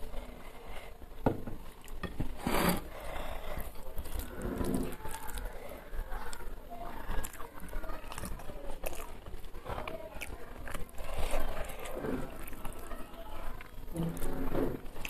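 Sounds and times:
fingers squishing food on plate: 1.2 - 15.0
chewing and lip-smacking: 3.6 - 15.0.

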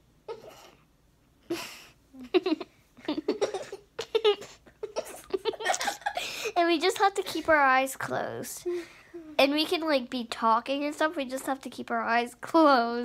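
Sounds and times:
girl giggling: 1.5 - 6.6.

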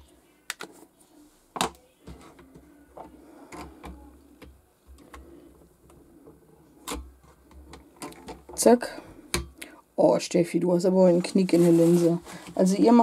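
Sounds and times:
handling rustle: 11.1 - 13.0.

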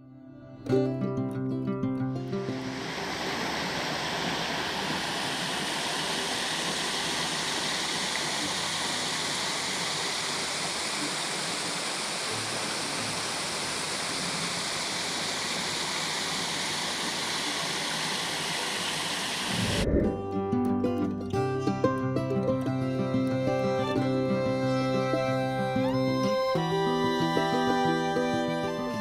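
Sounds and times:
waterfall rushing into pool: 2.2 - 19.9.

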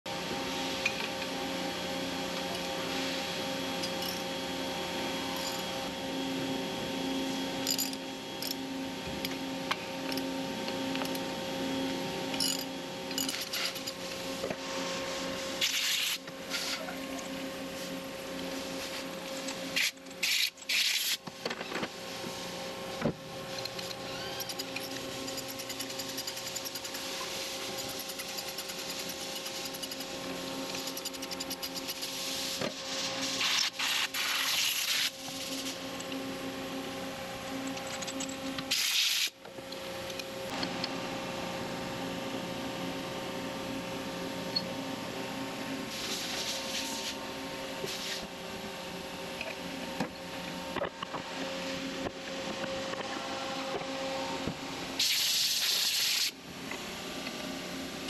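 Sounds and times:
machine hum: 0.1 - 55.2
wrench clicking and scraping: 12.4 - 14.0, 19.8 - 21.2, 23.6 - 27.1, 27.8 - 32.1.

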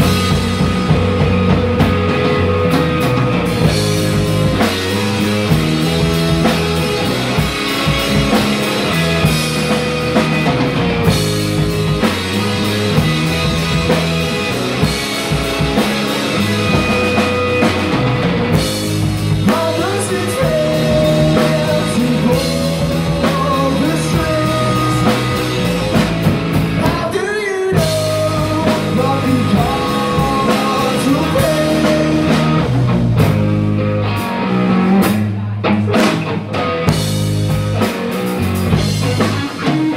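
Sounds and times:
bass guitar: 0.0 - 39.9
drum kit: 0.0 - 39.9
electric guitar: 0.0 - 39.9
man singing: 19.4 - 26.1, 26.8 - 32.9.

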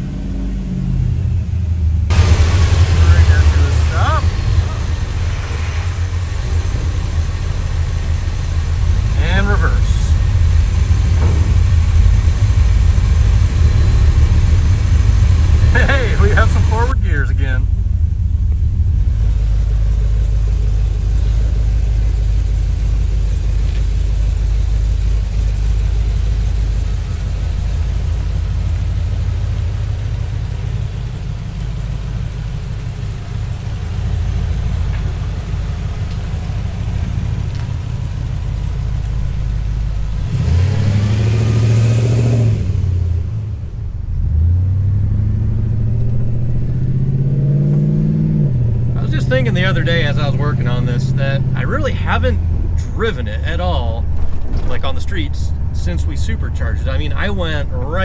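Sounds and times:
truck engine rumbling and revving: 0.0 - 58.0.

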